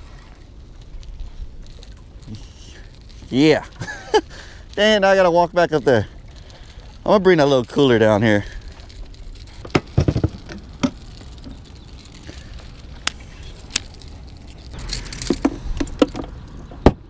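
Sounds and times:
knocks and clicks of handling gear: 9.6 - 11.7, 14.8 - 17.0.

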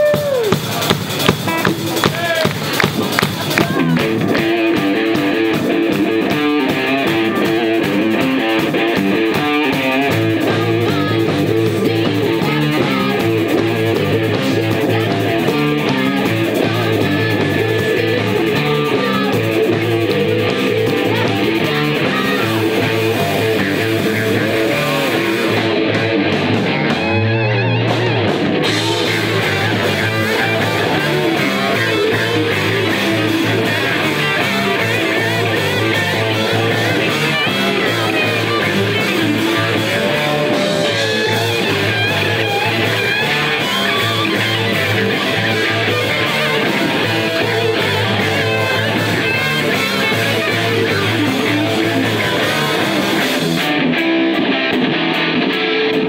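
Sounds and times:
rock band playing: 0.0 - 56.0.

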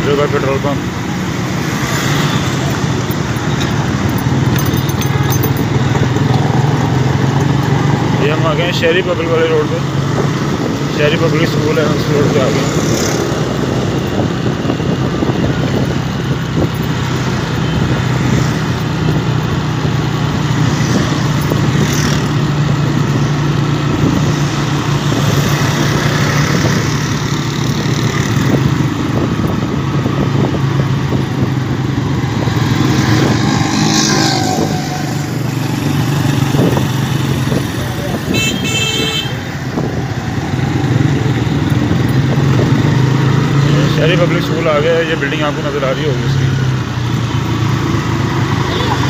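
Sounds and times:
motorcycle engine running: 2.0 - 8.7.

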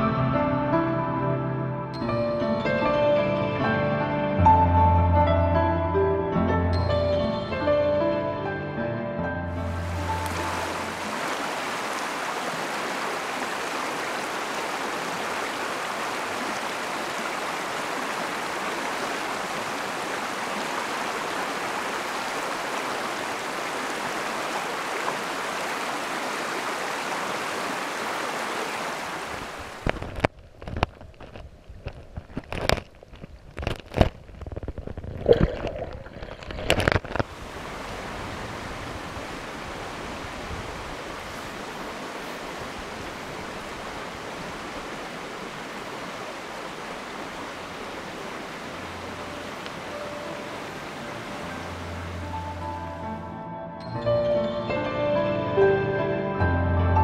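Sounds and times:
stream rushing over rocks: 9.6 - 31.3, 35.2 - 53.0.

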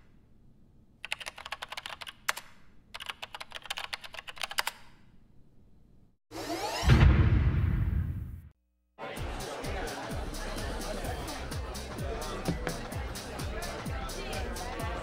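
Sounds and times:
keyboard typing: 1.0 - 4.9.

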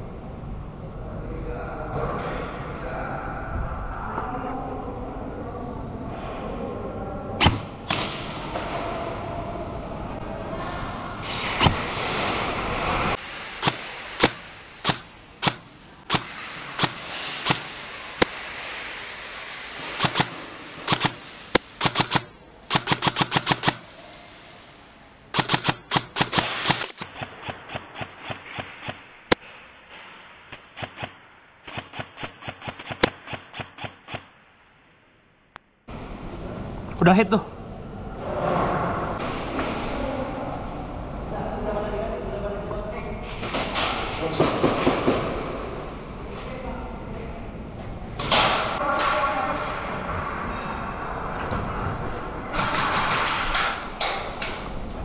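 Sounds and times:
airsoft guns firing: 13.6 - 18.3, 19.9 - 23.8, 25.3 - 29.0, 30.5 - 34.3.

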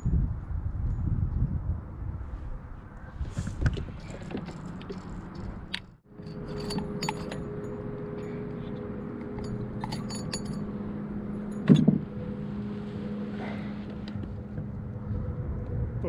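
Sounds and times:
steady low hum: 5.2 - 16.0.

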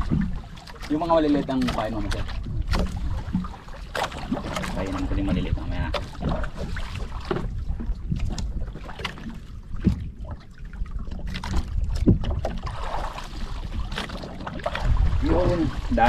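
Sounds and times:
water sloshing against hull: 0.0 - 16.0
wind on microphone: 1.1 - 16.0.

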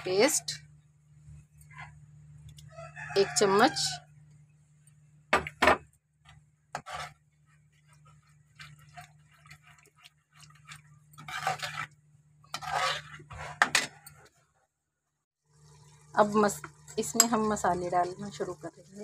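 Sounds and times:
metal spoon scraping a pan: 6.7 - 14.4.

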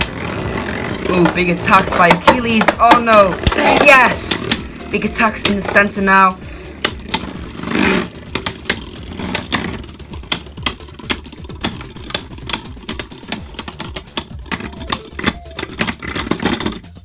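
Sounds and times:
spinning tops whirring: 0.0 - 17.0.

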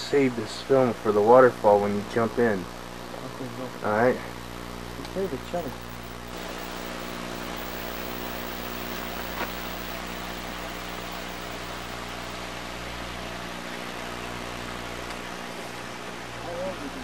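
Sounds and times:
low constant hum: 0.0 - 17.0
even hiss: 5.0 - 13.1
faint click: 8.8 - 11.9.

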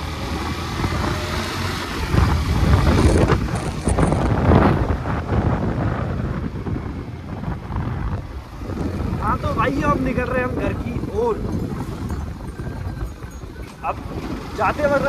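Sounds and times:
motorcycle engine: 0.0 - 15.0
road noise: 0.0 - 15.0
wind buffeting microphone: 0.0 - 15.0.

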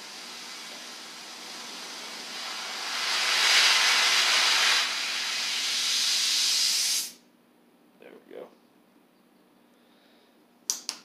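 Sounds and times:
torch flame hissing: 0.0 - 7.2.

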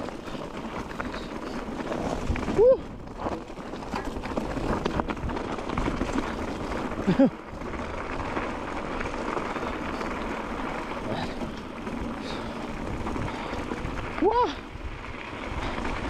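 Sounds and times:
wind noise on microphone: 1.7 - 7.0, 12.0 - 16.0.

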